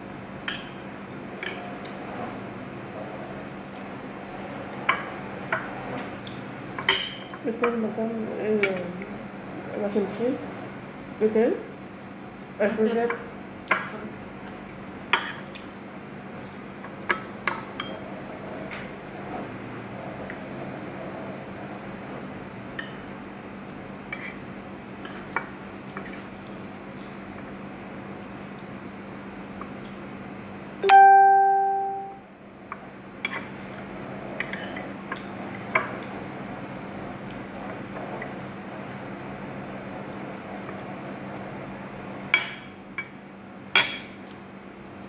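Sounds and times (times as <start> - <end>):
bell-like ring: 30.8 - 32.2.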